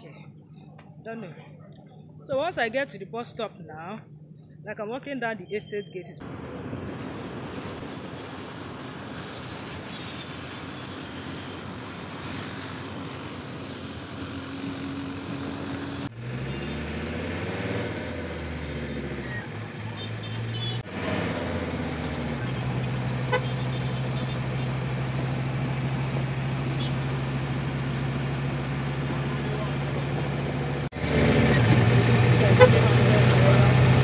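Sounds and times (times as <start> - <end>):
road and wind noise: 0.0 - 34.0
minibus engine from inside: 12.2 - 34.0.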